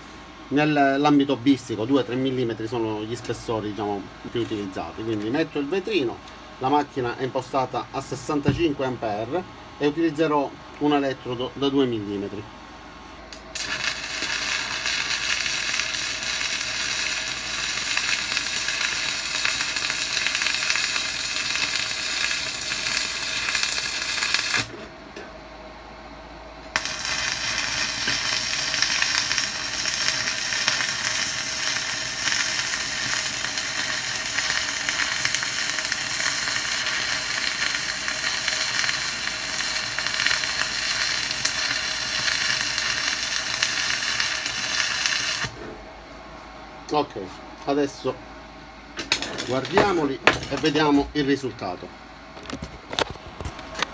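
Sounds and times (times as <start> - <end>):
welding arc crackling: 13.3 - 24.8, 26.7 - 45.6, 49.0 - 51.5.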